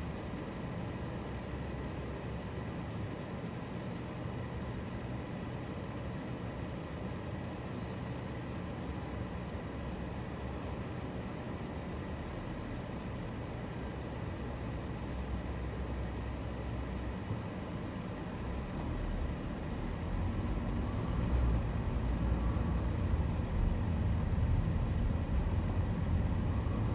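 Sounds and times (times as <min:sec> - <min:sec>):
car road and engine rumble: 0:00.0 - 0:26.9.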